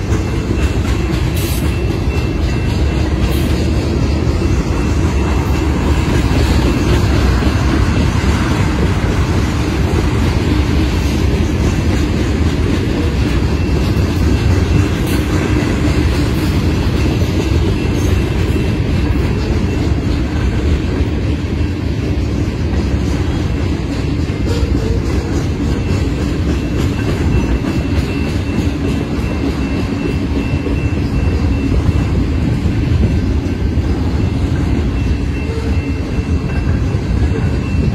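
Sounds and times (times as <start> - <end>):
train wheels rumbling on rails: 0.0 - 37.9.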